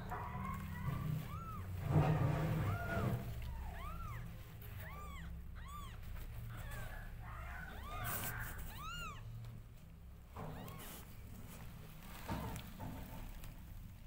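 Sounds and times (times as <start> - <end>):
kittens mewing: 0.0 - 9.5, 10.5 - 11.2.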